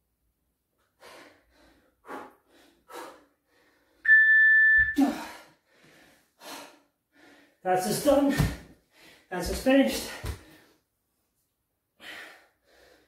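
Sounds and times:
hard rhythmic breathing: 0.8 - 4.1, 5.0 - 7.6
electronic timer beep: 4.1 - 5.0.

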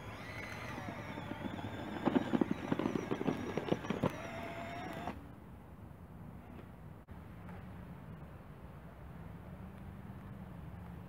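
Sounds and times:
small electric motors whining: 0.0 - 5.2
tracks crackling on gravel: 0.0 - 5.2.

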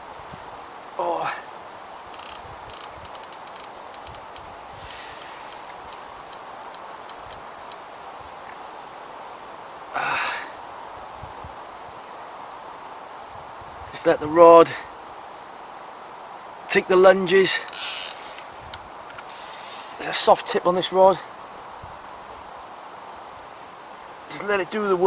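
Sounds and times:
fishing reel ticking: 2.2 - 6.4, 7.1 - 7.8, 17.7 - 18.2.

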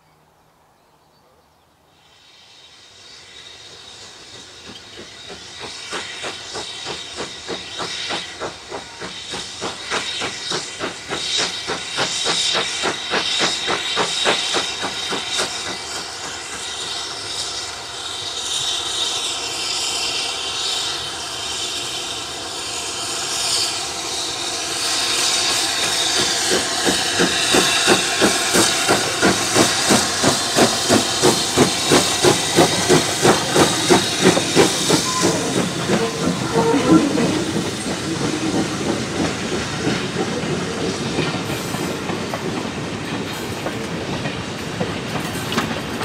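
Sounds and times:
rushing hiss of steam: 1.8 - 46.0
steam locomotive exhaust beats: 2.0 - 46.0.

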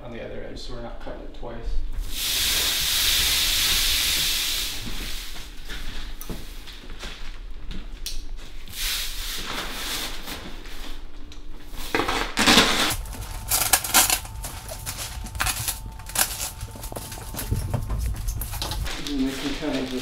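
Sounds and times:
plastic sheet rustling and crinkling: 4.8 - 11.1, 11.7 - 20.0.

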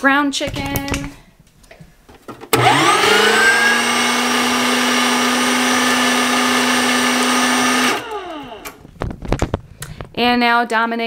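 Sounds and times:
meat grinder motor whine: 2.6 - 8.8.

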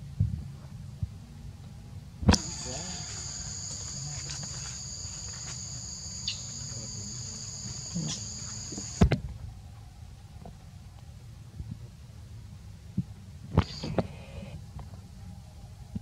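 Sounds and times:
insects shrilling: 2.3 - 9.0.

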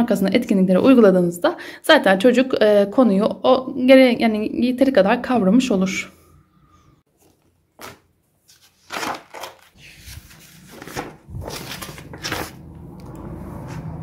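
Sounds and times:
paper pages rustling and flapping: 7.1 - 13.8.

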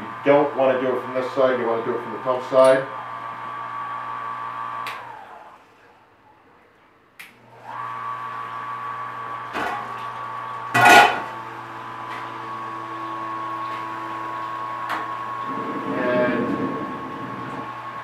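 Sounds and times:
small pump motor humming: 0.0 - 5.6, 7.4 - 18.0
click: 4.8 - 5.0, 7.2 - 7.4.

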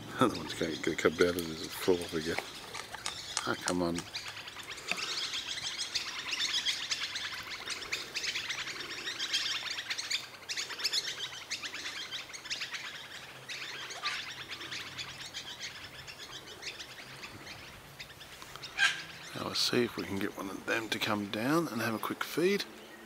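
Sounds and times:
birds chirping and twittering: 0.0 - 23.0.

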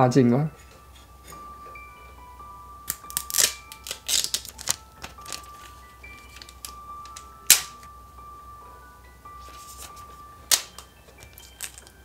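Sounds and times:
soft background music: 0.0 - 12.0
plastic film crackling: 2.9 - 7.9, 9.4 - 12.0.

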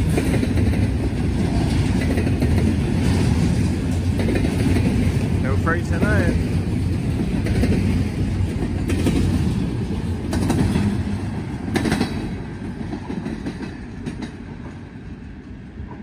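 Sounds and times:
train cars rolling rumble: 0.0 - 16.0
wheels clacking over rail joints: 0.0 - 16.0.

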